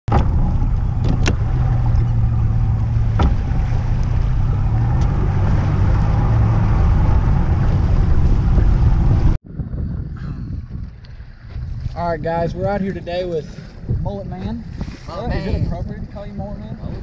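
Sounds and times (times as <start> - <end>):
outboard motor humming: 0.1 - 9.4.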